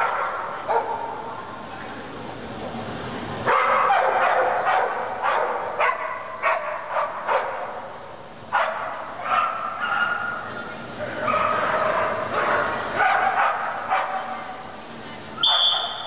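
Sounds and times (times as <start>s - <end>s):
dog barking: 0.0s - 1.2s, 3.5s - 7.8s, 8.6s - 10.4s, 11.2s - 14.3s, 15.4s - 16.0s.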